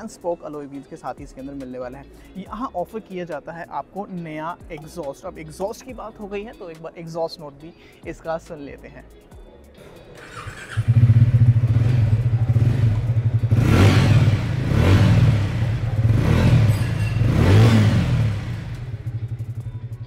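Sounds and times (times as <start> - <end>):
motorcycle engine starting: 9.8 - 19.6
motorcycle engine idling: 10.2 - 20.0.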